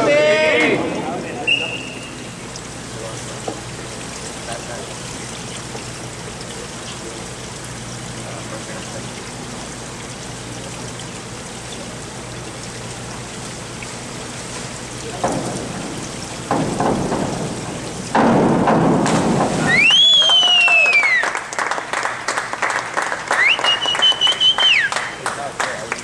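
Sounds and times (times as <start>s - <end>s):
water sprayers hissing: 0.2s - 9.2s, 13.3s - 21.2s
diver entering water: 13.6s - 21.5s
springboard knocks: 15.2s - 20.2s
person whooping: 19.6s - 21.4s.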